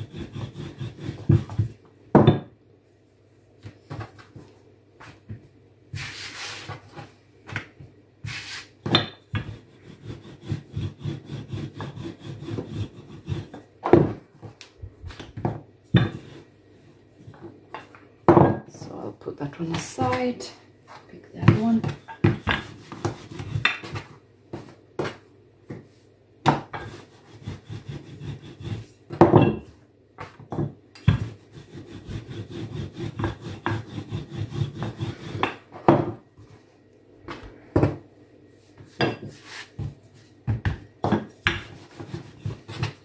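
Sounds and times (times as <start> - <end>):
rolling pin rumbling on dough: 0.0 - 2.5, 8.8 - 16.5, 21.0 - 36.5, 38.8 - 43.0.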